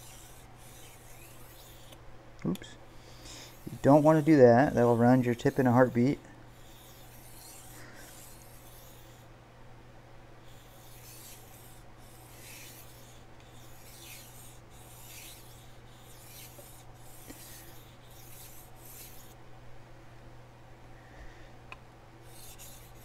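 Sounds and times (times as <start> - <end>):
knife scraping on whetstone: 0.0 - 2.0, 3.2 - 9.3, 10.4 - 19.4, 22.2 - 23.0.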